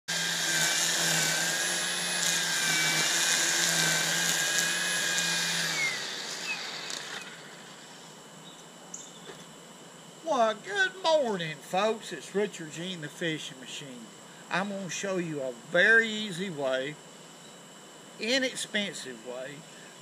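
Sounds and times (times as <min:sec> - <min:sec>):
small motor whirring: 0:00.1 - 0:07.8.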